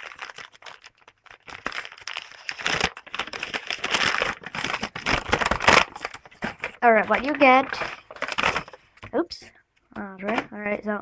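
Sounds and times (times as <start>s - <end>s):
paper crinkling and rustling: 0.0s - 9.2s.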